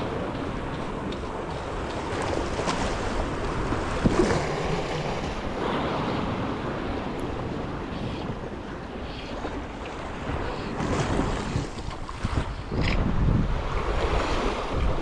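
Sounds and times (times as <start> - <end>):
sea waves washing against rock: 0.0 - 15.0
wind buffeting microphone: 0.0 - 15.0.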